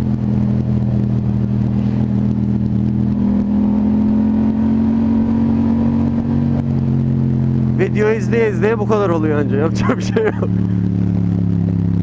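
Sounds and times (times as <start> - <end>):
motorcycle engine running: 0.0 - 12.0.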